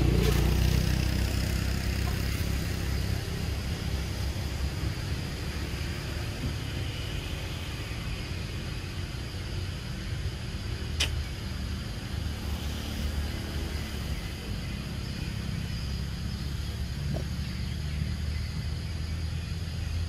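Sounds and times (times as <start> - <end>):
sharp click: 11.0 - 11.2.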